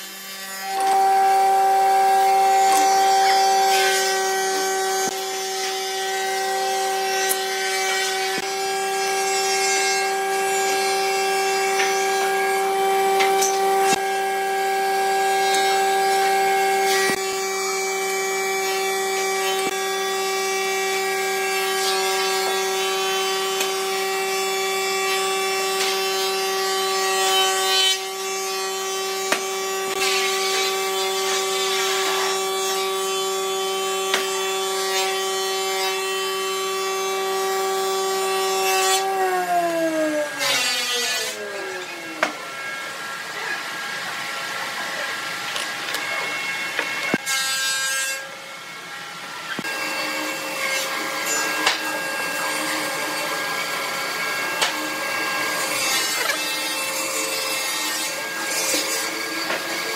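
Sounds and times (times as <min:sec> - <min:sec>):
electric motor humming: 0:00.0 - 0:19.8.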